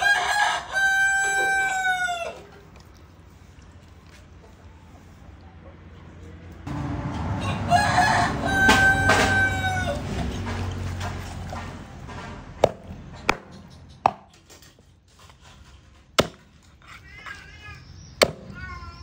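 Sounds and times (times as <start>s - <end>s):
rooster crowing: 0.0s - 2.5s, 6.7s - 10.5s
cleaver chopping on wooden board: 16.2s - 16.5s.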